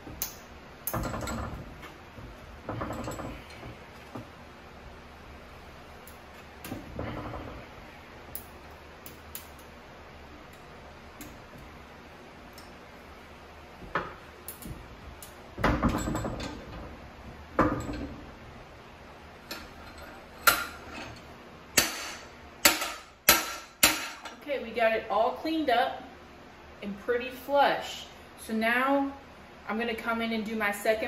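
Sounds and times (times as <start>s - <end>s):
metal knocks and clinks: 0.9s - 1.7s, 2.7s - 3.8s, 15.6s - 16.9s, 17.6s - 18.2s.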